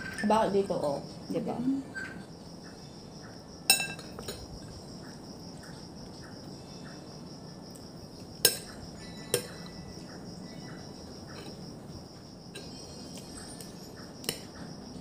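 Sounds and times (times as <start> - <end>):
crickets chirping: 0.0 - 15.0
cutlery clinking on a plate: 3.7 - 4.5, 8.4 - 9.8.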